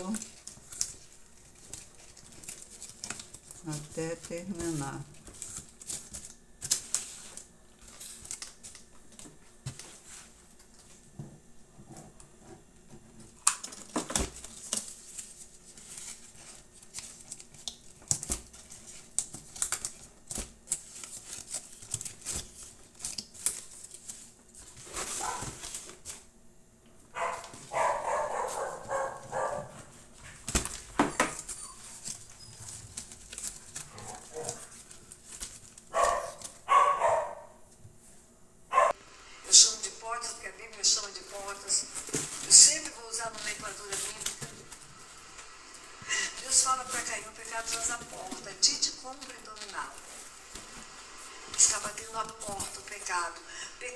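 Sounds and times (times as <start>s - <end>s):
paper and cardboard crackling: 0.0s - 11.1s, 13.1s - 26.3s, 27.2s - 36.8s, 40.8s - 45.1s, 46.4s - 50.9s, 51.6s - 53.9s
dog barking: 25.2s - 25.6s, 27.1s - 29.8s, 34.0s - 34.6s, 35.9s - 37.6s, 38.7s - 39.0s.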